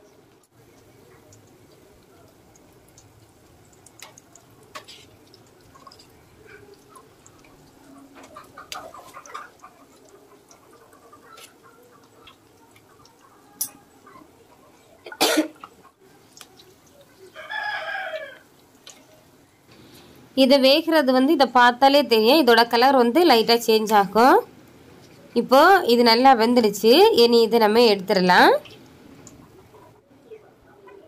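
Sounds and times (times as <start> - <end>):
pastries sizzling in oil: 0.0 - 29.9.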